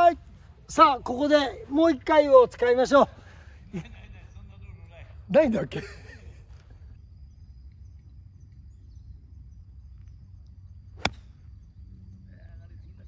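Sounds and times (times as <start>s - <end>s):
golf club striking ball: 11.0s - 11.6s.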